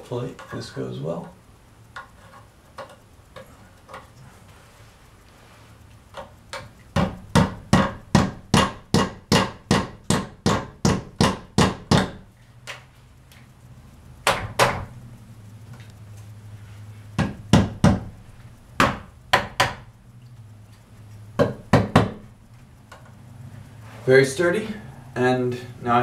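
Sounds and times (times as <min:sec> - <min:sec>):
hammer blows on wood: 0:07.0 - 0:12.2.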